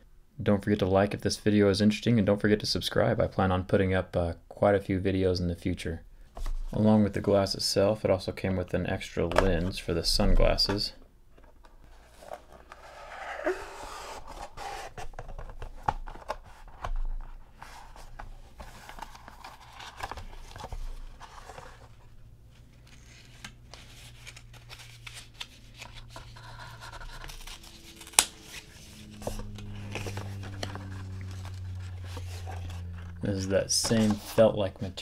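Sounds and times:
low steady hum: 0:00.0 - 0:35.0
cardboard box being opened: 0:24.0 - 0:34.4.

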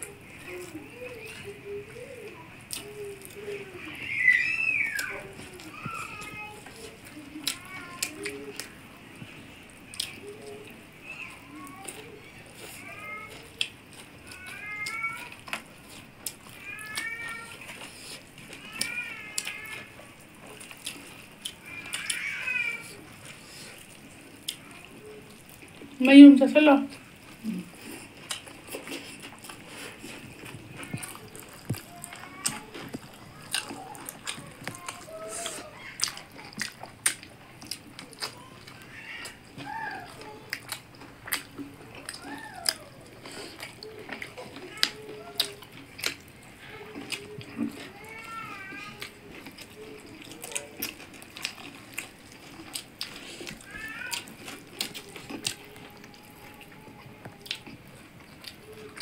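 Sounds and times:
chewing: 0:00.0 - 0:26.0, 0:26.9 - 0:59.0
people eating by hand: 0:00.0 - 0:59.0
cat meowing: 0:14.3 - 0:15.4, 0:16.6 - 0:17.5, 0:21.6 - 0:22.9, 0:53.7 - 0:54.2.

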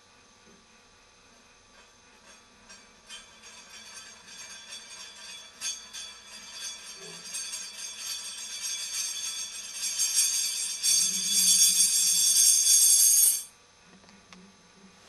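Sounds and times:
metal disc rattling on wooden floor: 0:01.8 - 0:13.5.

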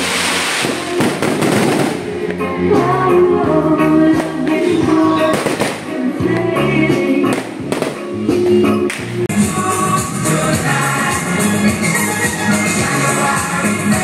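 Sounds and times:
fireworks crackling and popping: 0:00.0 - 0:02.7, 0:04.2 - 0:06.4, 0:07.1 - 0:09.2.

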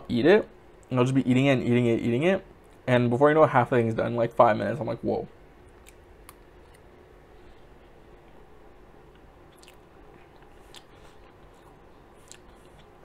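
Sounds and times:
chewing soft cake: 0:09.0 - 0:13.0.

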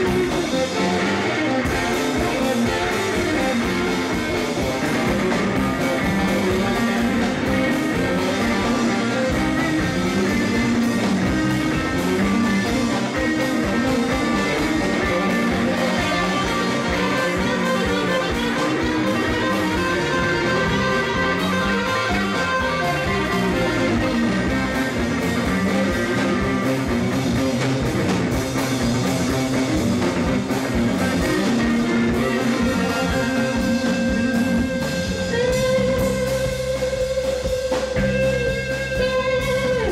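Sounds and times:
drum kit: 0:00.0 - 0:39.9
electric guitars playing: 0:00.0 - 0:39.9.

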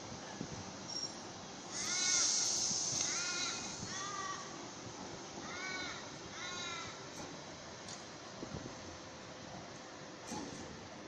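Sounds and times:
train air hiss: 0:00.8 - 0:05.2
crow cawing: 0:01.8 - 0:02.4, 0:05.4 - 0:07.0.

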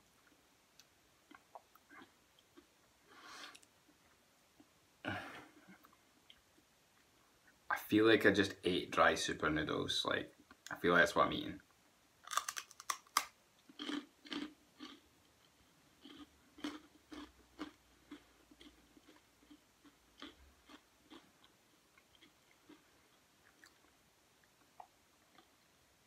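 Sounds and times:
rice cracker crunching: 0:12.2 - 0:15.0, 0:16.0 - 0:19.6.

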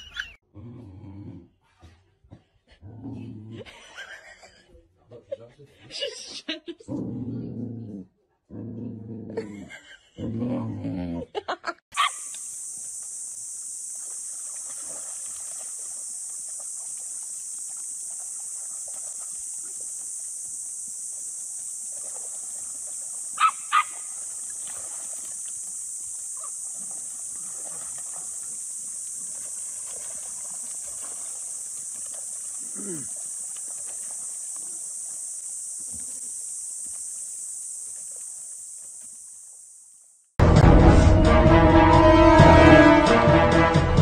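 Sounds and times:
dog growling and whining: 0:10.2 - 0:11.3
steady high-pitched hiss: 0:12.0 - 0:40.3.

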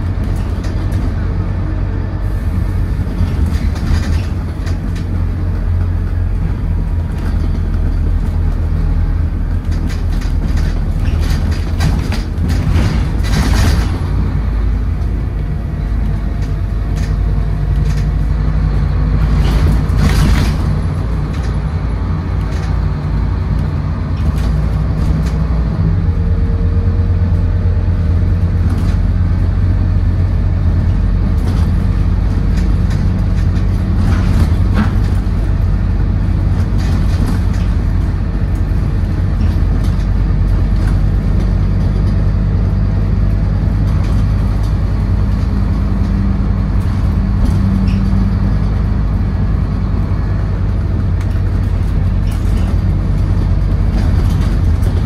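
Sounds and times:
bus body rattles and knocks: 0:00.0 - 0:55.0
bus diesel engine: 0:00.0 - 0:55.0.

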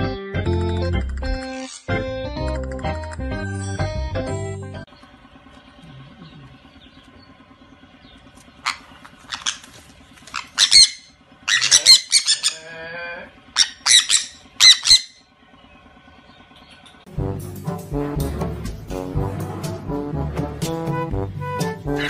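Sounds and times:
parrots screeching: 0:01.5 - 0:01.9, 0:08.6 - 0:12.8, 0:13.6 - 0:15.2
lower chattering bird call: 0:04.9 - 0:12.7, 0:13.3 - 0:17.0.

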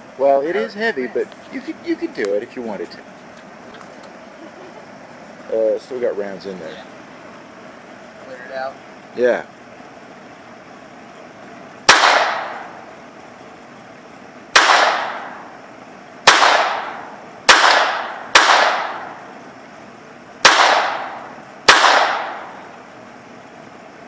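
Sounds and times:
pistol shots echoing: 0:11.9 - 0:12.8, 0:14.5 - 0:15.5, 0:16.2 - 0:19.3, 0:20.4 - 0:22.7.

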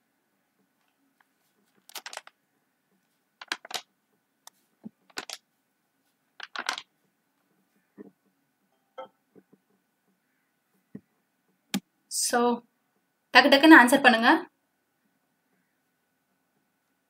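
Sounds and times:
clicking and rattling bursts: 0:01.2 - 0:02.4, 0:03.4 - 0:05.4.

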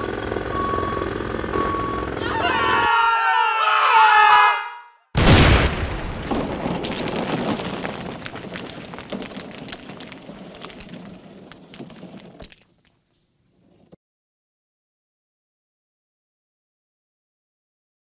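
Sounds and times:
wall crashing: 0:05.2 - 0:12.4
rubble clattering: 0:05.4 - 0:13.9.

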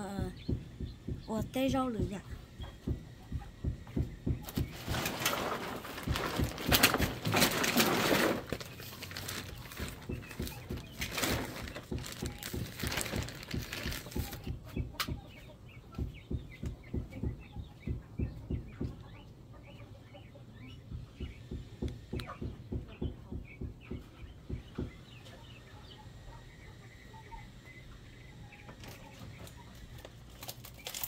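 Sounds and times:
soft low thumps: 0:00.0 - 0:06.7, 0:09.1 - 0:15.3, 0:15.9 - 0:19.1
birds calling: 0:00.0 - 0:31.0
loud rustling: 0:04.5 - 0:14.5.

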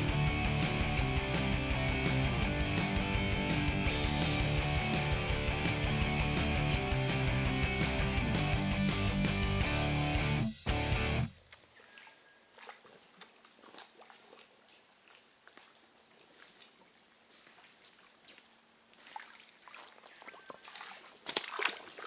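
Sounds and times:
insects droning: 0:10.6 - 0:22.0.

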